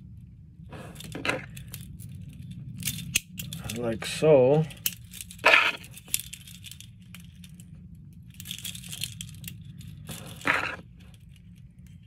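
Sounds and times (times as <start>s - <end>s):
metal rings clicking: 4.7s - 7.6s, 8.2s - 12.0s
handling noise: 4.7s - 12.0s.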